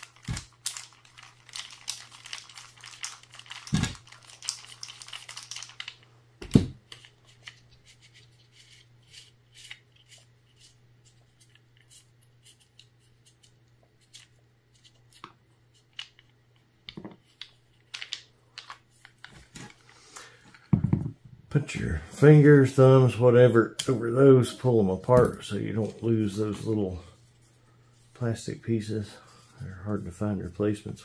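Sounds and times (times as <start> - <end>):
crinkling rustle: 0.0 - 6.1.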